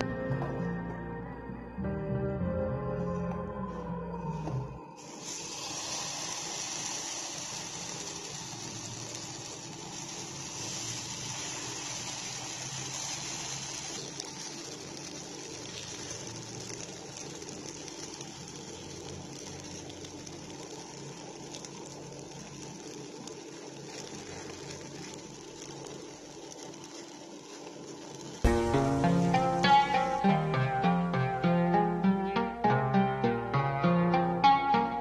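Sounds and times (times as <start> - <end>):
batter sizzling in hot oil: 5.0 - 31.4.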